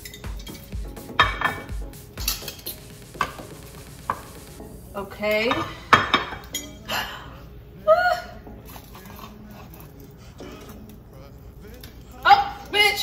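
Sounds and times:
utensils and plate clinking: 0.0 - 2.9, 5.5 - 6.9, 8.5 - 12.7.

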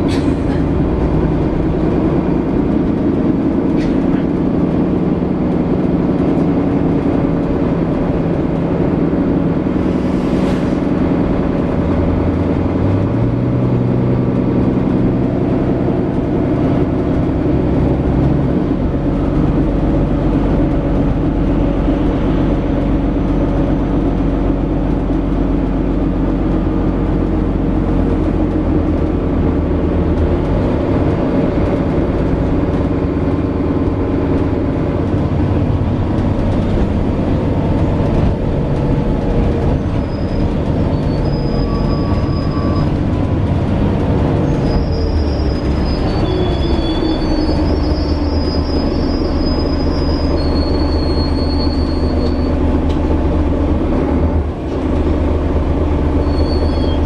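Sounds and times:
bus engine and road rumble: 0.0 - 57.0
drivetrain whine: 10.9 - 57.0
thin high squeaks: 39.8 - 43.0, 44.5 - 52.6, 56.2 - 57.0.

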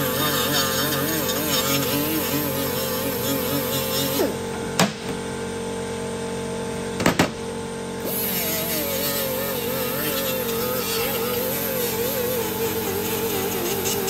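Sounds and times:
air die grinder whining: 0.0 - 4.6, 8.0 - 14.0
air hiss: 8.0 - 14.0.

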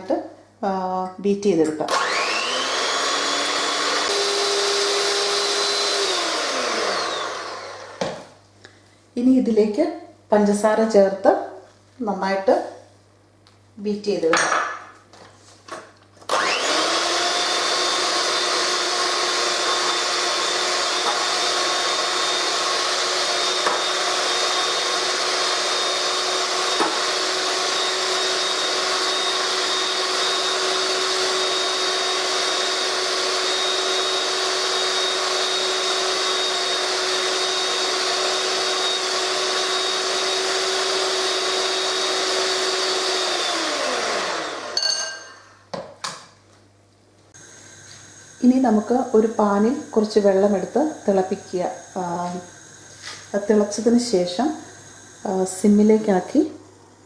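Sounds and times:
mixer motor winding down: 1.9 - 8.0, 16.3 - 44.8, 47.4 - 56.4
electric hand mixer whining: 1.9 - 8.3, 16.3 - 45.5, 47.4 - 56.4.

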